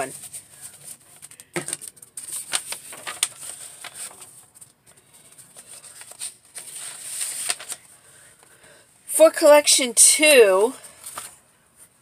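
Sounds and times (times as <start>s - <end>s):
paper and card rustling: 0.0s - 8.0s, 10.8s - 11.9s.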